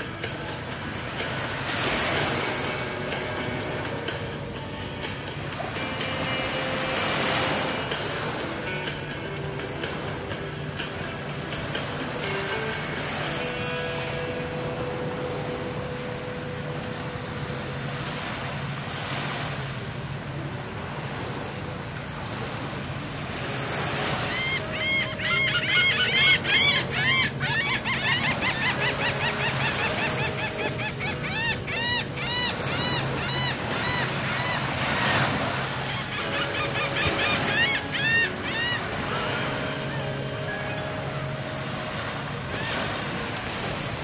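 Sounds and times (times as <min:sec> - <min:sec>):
gentle surf washing in: 0:00.0 - 0:27.4, 0:28.1 - 0:44.0
flock of birds calling: 0:23.9 - 0:43.7.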